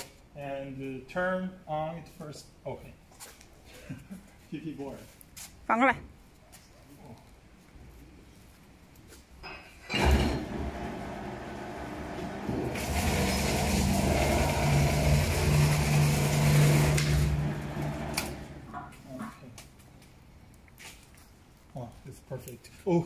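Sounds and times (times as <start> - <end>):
cutting press motor hum: 10.0 - 18.7.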